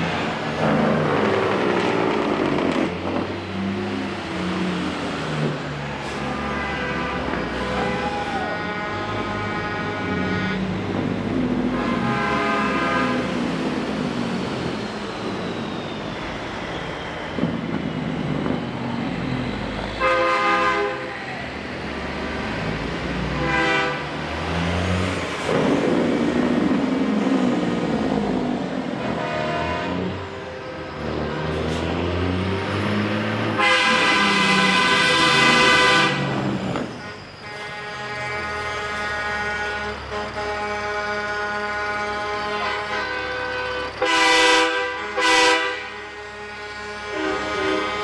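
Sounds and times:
diesel trucks rumbling past: 0:00.0 - 0:48.0
truck air horn blasts: 0:06.0 - 0:11.0, 0:11.6 - 0:13.4, 0:20.0 - 0:21.1, 0:23.3 - 0:24.1, 0:28.9 - 0:30.4, 0:33.5 - 0:48.0.

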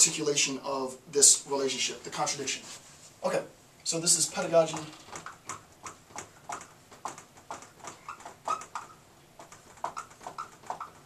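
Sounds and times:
marker squeaking on whiteboard: 0:04.4 - 0:11.0.

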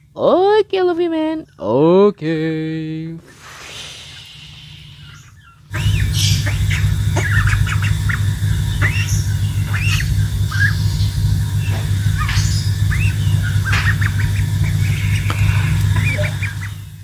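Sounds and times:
duckling peeping and squawking: 0:03.3 - 0:17.0
low rumble: 0:04.5 - 0:17.0.

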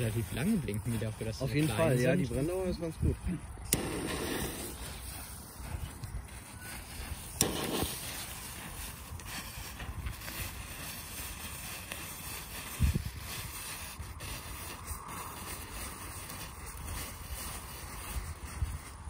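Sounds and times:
wind on microphone: 0:00.0 - 0:19.0
firework crack: 0:03.4 - 0:18.0.

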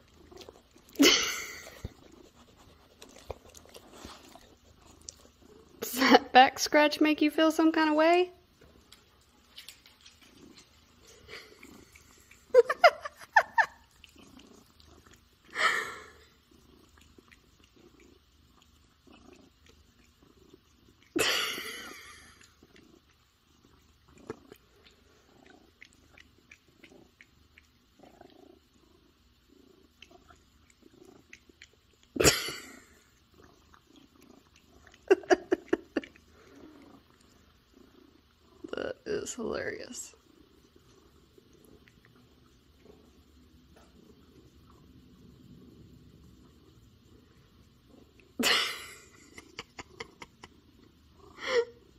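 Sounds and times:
cat purring: 0:00.0 - 0:51.9.

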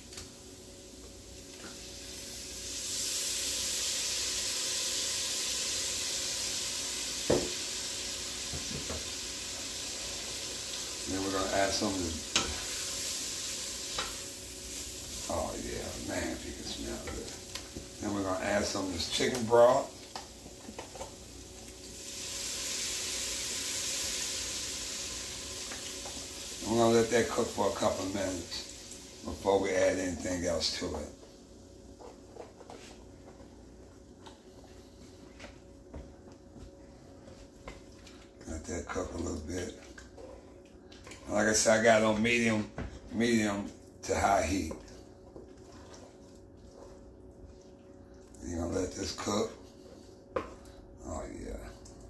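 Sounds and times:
food sizzling in a pot: 0:00.0 - 0:33.1
knocks on a pot: 0:07.3 - 0:07.6.

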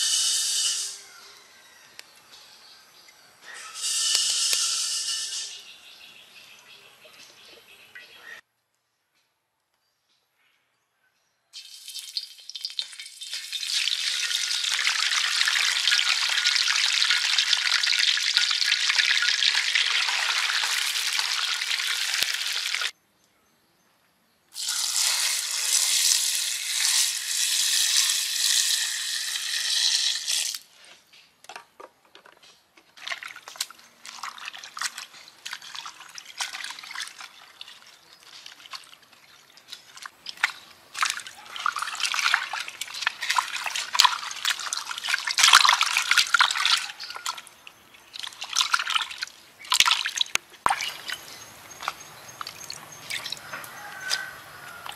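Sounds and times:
fish sizzling in hot oil: 0:11.6 - 0:22.9, 0:24.6 - 0:30.6
hands washing vegetables in water: 0:11.6 - 0:22.9, 0:33.0 - 0:54.9
water pouring into bowl: 0:33.0 - 0:47.5.

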